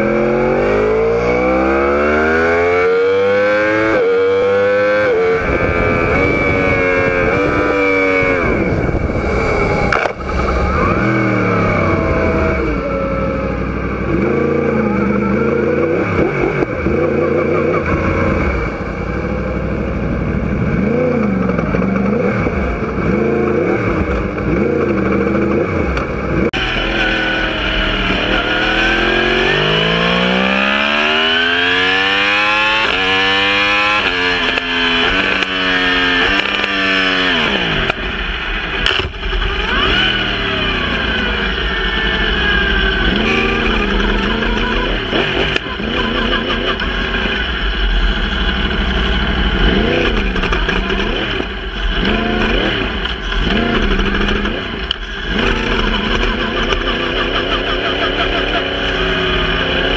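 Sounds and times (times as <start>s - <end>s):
motorcycle engine at speed: 0.0s - 59.9s
wind rush over microphone: 5.2s - 12.8s.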